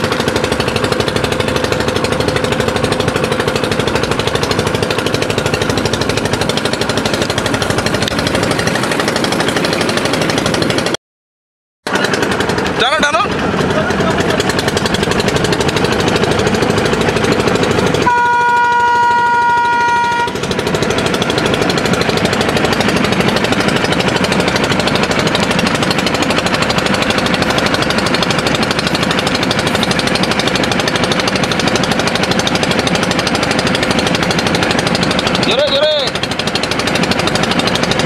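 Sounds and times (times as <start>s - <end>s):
boat engine clattering: 0.0s - 11.0s, 11.8s - 38.0s
locomotive horn: 18.0s - 20.5s.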